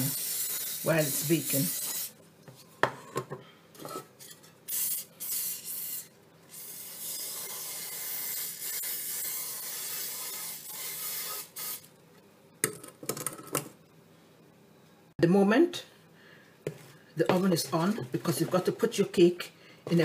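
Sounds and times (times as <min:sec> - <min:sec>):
aerosol spray hissing into metal pan: 0:00.0 - 0:02.1, 0:04.7 - 0:11.9.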